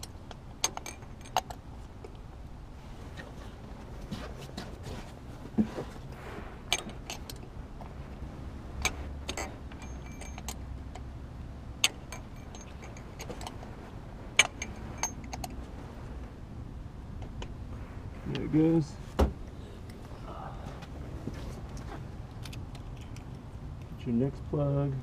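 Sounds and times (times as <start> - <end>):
metal hand tools clinking: 8.8 - 11.0, 11.8 - 13.6, 14.4 - 15.6.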